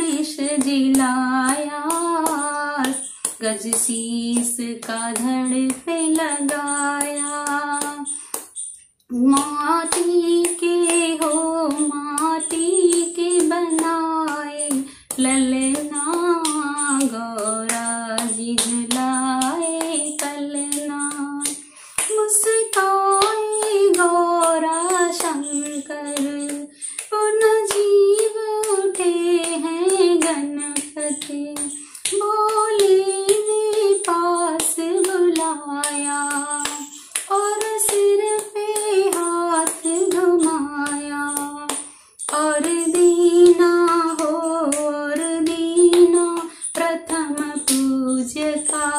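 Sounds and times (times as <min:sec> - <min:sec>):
woman singing: 0:00.0 - 0:08.5, 0:09.1 - 0:48.9.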